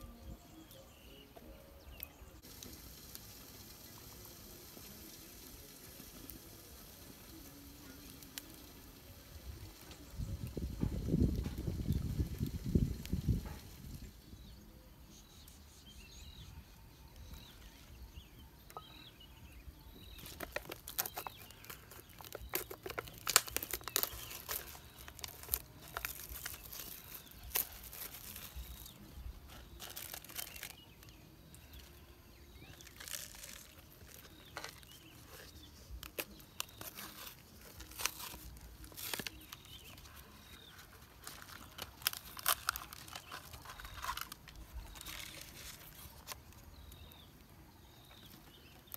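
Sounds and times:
packaging crinkling and tearing: 0:20.0 - 0:47.3.

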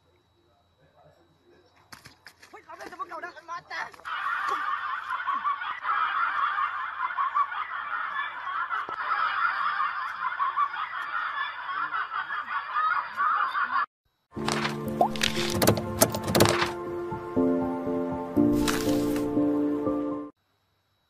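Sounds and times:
snickering laughter: 0:04.1 - 0:13.9.

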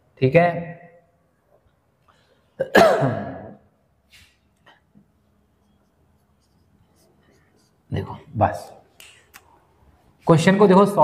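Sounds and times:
marker scratching on whiteboard: 0:05.4 - 0:08.8.

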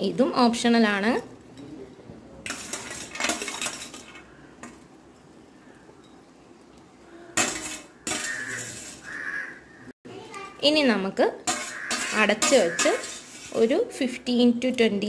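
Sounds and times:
spoon scraping a pan: 0:02.4 - 0:04.9, 0:07.3 - 0:09.6, 0:11.4 - 0:14.3.

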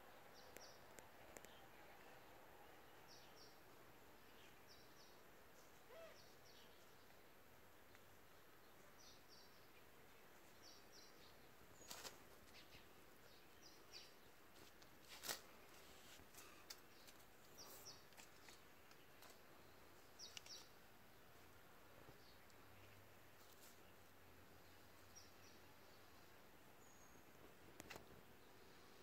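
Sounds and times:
small bird chirping: 0:04.3 - 0:07.0, 0:15.7 - 0:20.8.

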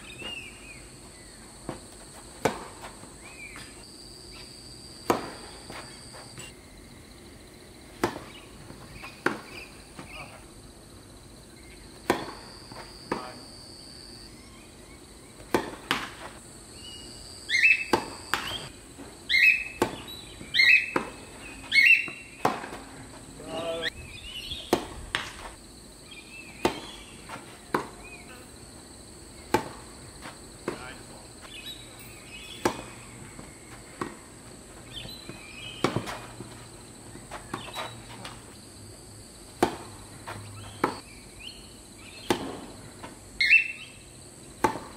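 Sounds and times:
tennis balls struck and bouncing: 0:00.0 - 0:03.9, 0:05.0 - 0:06.6, 0:07.9 - 0:10.4, 0:11.7 - 0:13.5, 0:15.3 - 0:16.4, 0:17.5 - 0:23.9, 0:24.5 - 0:25.6, 0:26.4 - 0:28.2, 0:29.3 - 0:38.6, 0:39.5 - 0:41.1, 0:42.1 - 0:43.2, 0:44.4 - 0:44.9.

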